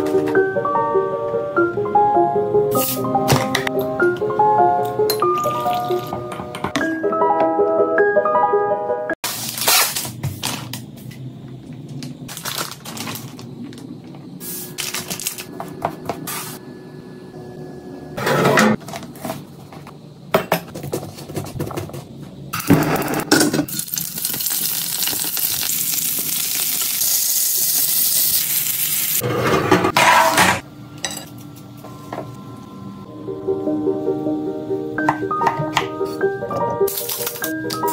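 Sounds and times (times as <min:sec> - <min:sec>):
shrimp sizzling in a pan: 0:23.7 - 0:29.2.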